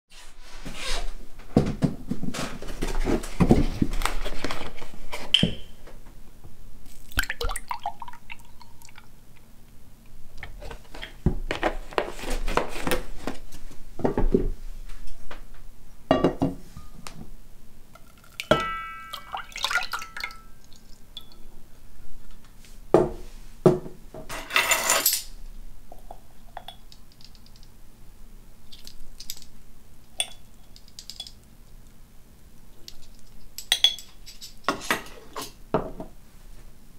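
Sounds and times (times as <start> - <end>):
liquid pouring: 6.9 - 9.1, 18.1 - 21.4
glass and pot clinks: 18.3 - 20.6, 33.6 - 34.5.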